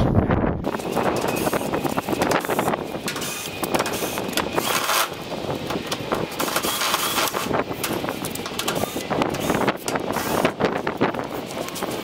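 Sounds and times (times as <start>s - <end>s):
steady noise: 0.0s - 12.0s.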